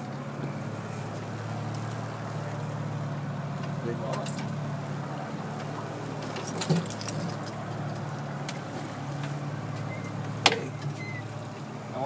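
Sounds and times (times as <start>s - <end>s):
boat motor humming: 0.0s - 12.0s
light clicks and rattles: 3.6s - 4.6s, 5.5s - 11.2s.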